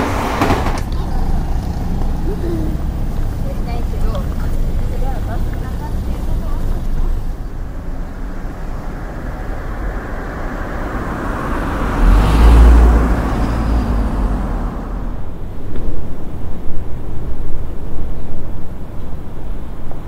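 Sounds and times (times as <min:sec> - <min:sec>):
vehicle passing close by: 0:00.0 - 0:15.7
road traffic noise: 0:00.0 - 0:20.0.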